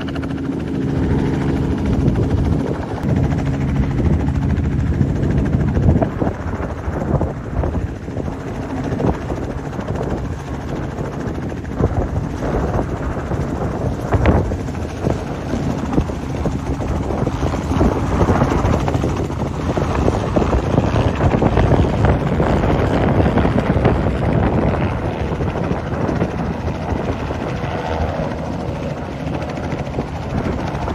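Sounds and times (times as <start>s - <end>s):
light aircraft propeller drone: 0.0s - 30.9s.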